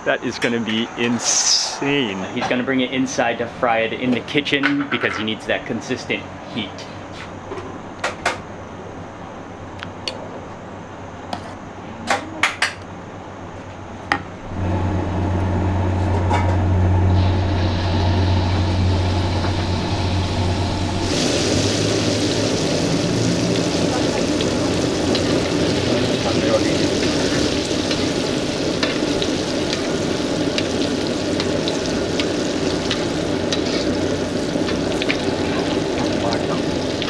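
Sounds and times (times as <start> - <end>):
loud steady low hum: 14.2 - 37.0
hot oil sizzling in a pan: 17.0 - 37.0.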